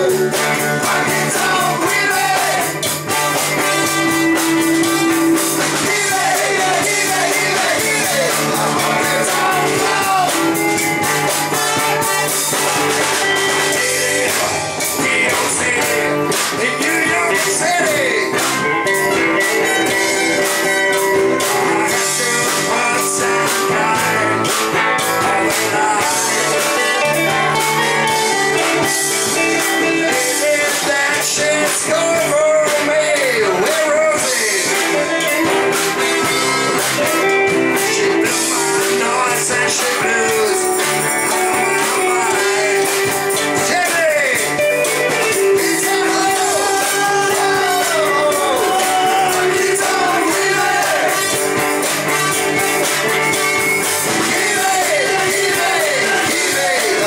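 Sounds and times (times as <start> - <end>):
live band playing rock and roll: 0.0 - 57.0
person singing: 0.0 - 57.0.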